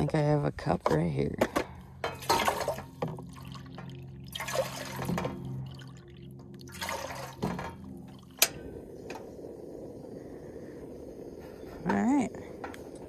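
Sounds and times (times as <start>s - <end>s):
water pouring into a saucepan: 2.2s - 7.8s
gas burner hissing: 6.7s - 13.0s.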